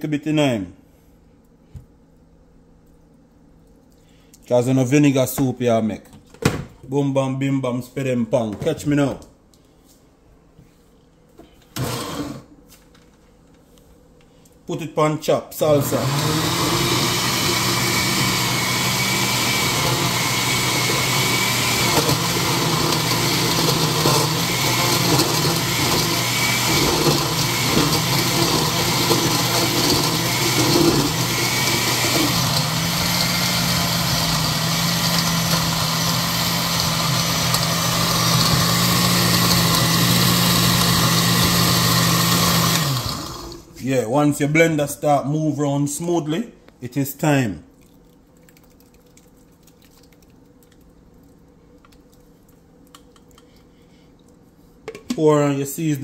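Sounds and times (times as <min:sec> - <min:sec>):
blender motor running: 0:11.8 - 0:12.5, 0:15.6 - 0:43.7.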